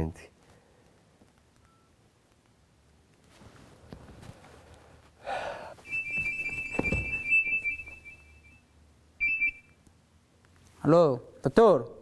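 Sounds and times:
electronic double-tone beeping: 0:05.9 - 0:08.6, 0:09.2 - 0:09.7.

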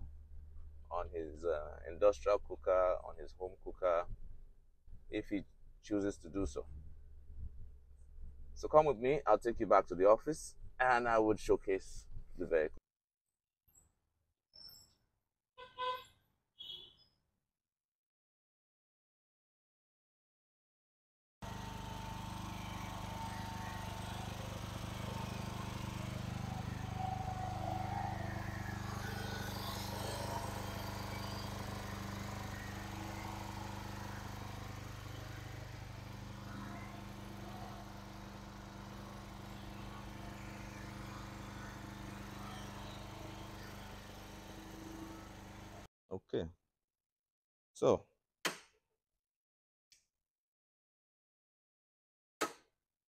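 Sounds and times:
engine idling: 0:21.4 - 0:45.9.

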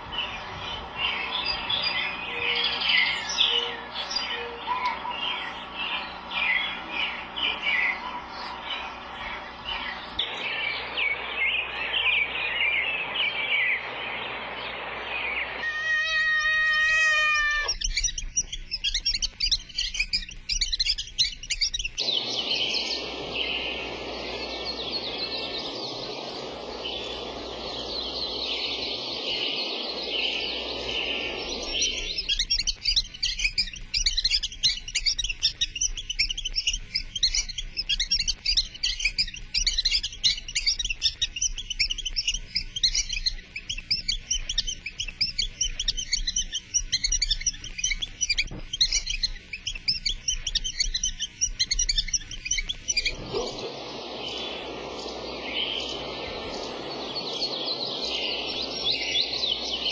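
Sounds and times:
steady rushing noise: 0:00.0 - 0:15.7, 0:21.9 - 0:34.8, 0:51.9 - 0:59.9
songbirds chirping: 0:00.0 - 0:59.9.

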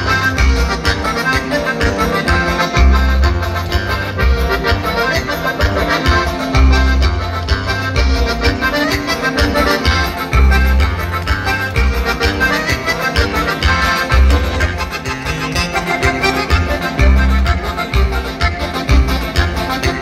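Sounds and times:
accordion: 0:00.0 - 0:20.0
band music over loudspeakers: 0:00.0 - 0:20.0
heavy bass line: 0:00.0 - 0:20.0.

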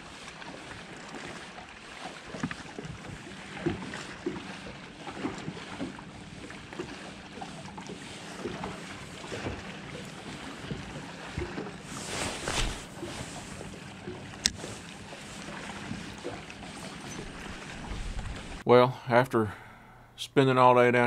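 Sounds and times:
waves slapping boat hull: 0:00.0 - 0:18.7
faint steady hum: 0:12.0 - 0:21.0
wind on microphone: 0:17.0 - 0:18.6.

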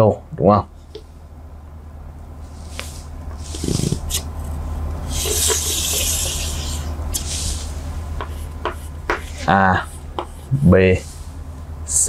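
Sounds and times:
chalk scraping on chalkboard: 0:02.6 - 0:04.3, 0:05.1 - 0:11.3.

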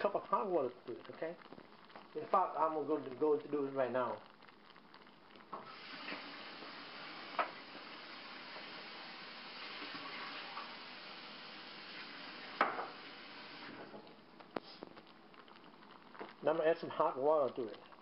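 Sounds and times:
beans bubbling in a pot: 0:00.0 - 0:18.0
knock on pot: 0:12.6 - 0:13.0.

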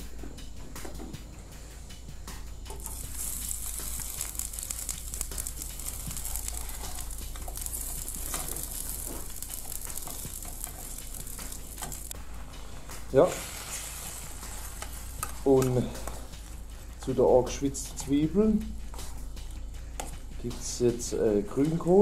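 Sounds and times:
onion sizzling in a frying pan: 0:02.7 - 0:19.2.

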